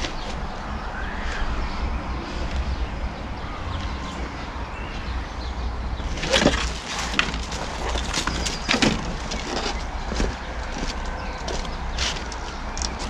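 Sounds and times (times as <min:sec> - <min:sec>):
steady low rumble: 0:00.0 - 0:13.0
wire mesh and wood clattering: 0:06.0 - 0:13.0.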